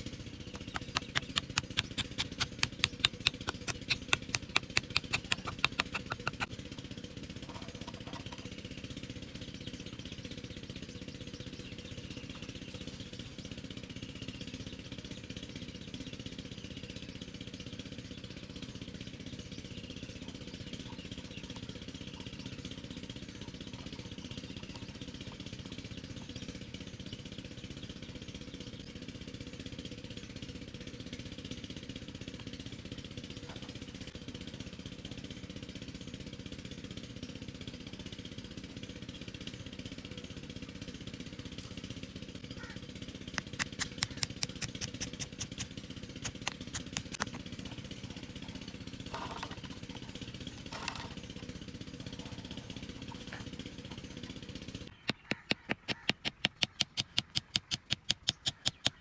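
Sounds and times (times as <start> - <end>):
low mechanical hum: 0.0 - 59.0
hammer tapping wooden peg: 0.6 - 6.5, 55.0 - 59.0.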